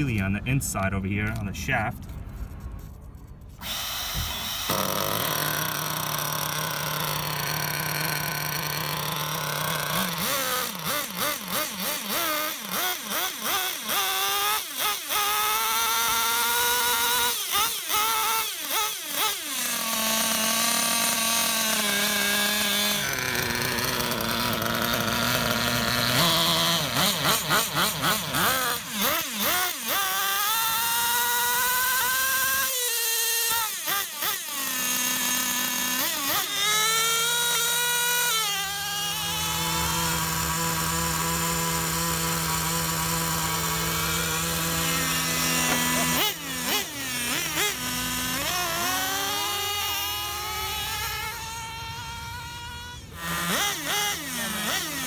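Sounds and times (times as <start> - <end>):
nitro engine revving: 0.0 - 55.0.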